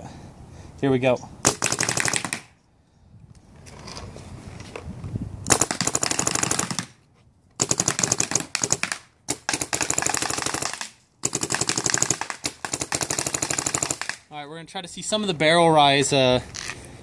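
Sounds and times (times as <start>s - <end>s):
paintball markers firing bursts: 1.4s - 2.5s, 5.5s - 7.0s, 7.6s - 14.2s.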